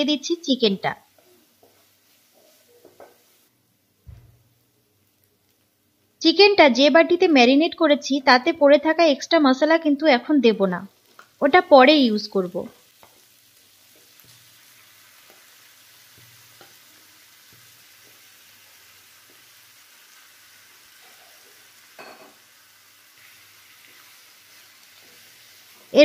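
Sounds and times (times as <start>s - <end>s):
chicken sizzling in oil: 0.0s - 3.5s, 10.9s - 26.0s.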